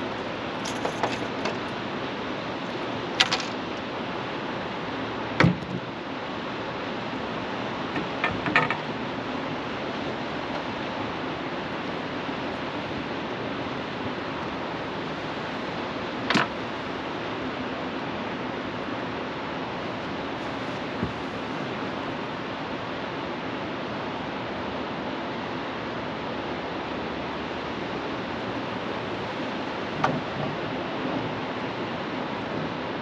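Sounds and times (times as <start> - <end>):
river water rushing: 0.0 - 33.0
sharp knocks and clicks: 7.9 - 8.9.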